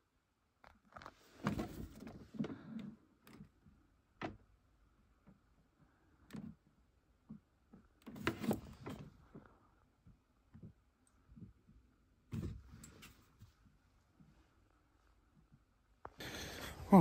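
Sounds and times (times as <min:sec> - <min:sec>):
rustling and clattering: 0:00.6 - 0:04.5.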